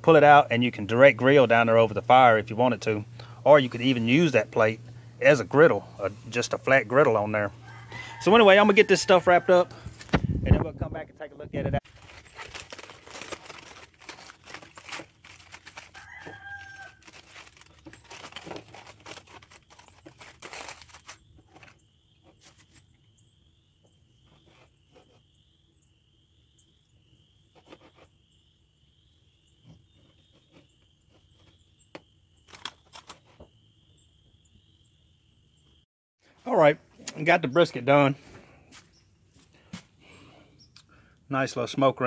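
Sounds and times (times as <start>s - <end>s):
aluminium foil crinkling: 11.8s - 22.9s.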